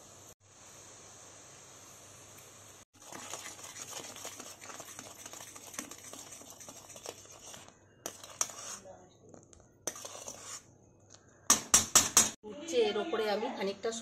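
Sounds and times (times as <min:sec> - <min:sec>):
paste sizzling in hot oil: 0:00.0 - 0:08.9, 0:09.8 - 0:10.7
spatula scraping metal pan: 0:03.0 - 0:08.9, 0:09.8 - 0:10.7.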